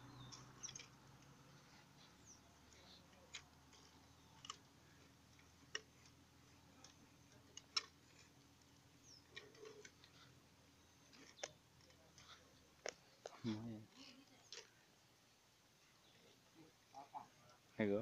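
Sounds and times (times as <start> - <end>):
model excavator clicking: 0.1 - 13.4.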